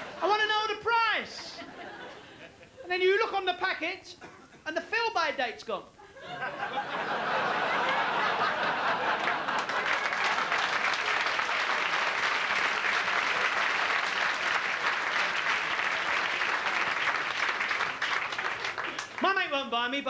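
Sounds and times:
audience applauding: 7.1 - 19.5.

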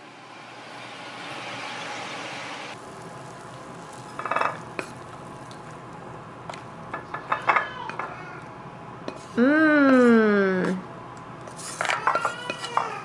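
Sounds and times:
wooden utensil scraping a pan: 11.5 - 12.9.

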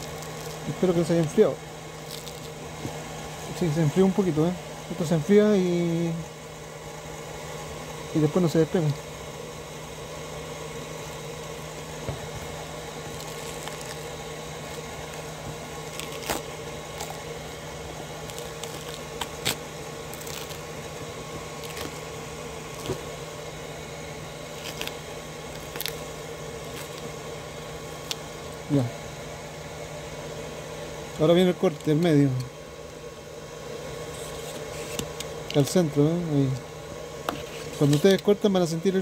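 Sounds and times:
glue cracking: 0.0 - 1.4, 2.0 - 2.6, 13.1 - 17.3, 18.2 - 20.9, 21.6 - 22.1, 24.5 - 27.1, 27.9 - 28.3
steady hum: 0.0 - 39.0.

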